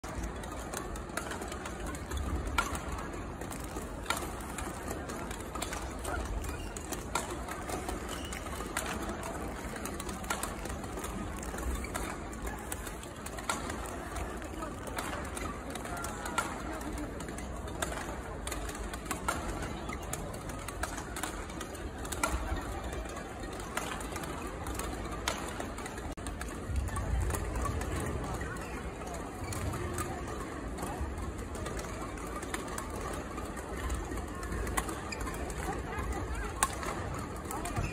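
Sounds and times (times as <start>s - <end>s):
sports hall hum: 0.0s - 37.9s
rackets striking shuttlecocks: 0.1s - 28.7s, 29.3s - 37.9s
rackets hitting shuttlecock: 0.2s - 12.7s.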